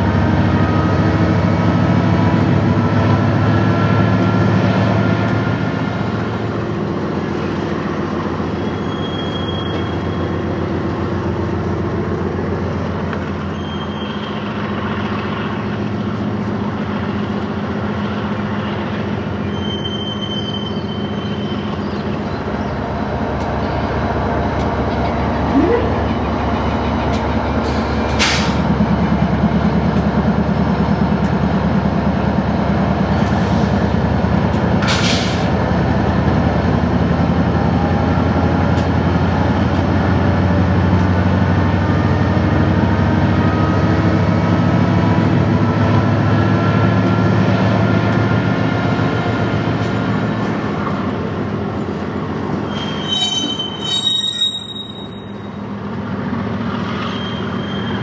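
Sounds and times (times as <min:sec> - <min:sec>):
diesel locomotive engine running: 0:00.0 - 0:58.0
rumble of train wheels: 0:00.0 - 0:58.0
high wheel squeals: 0:08.4 - 0:10.6, 0:13.4 - 0:14.8, 0:19.3 - 0:22.0, 0:52.5 - 0:55.8, 0:56.7 - 0:58.0.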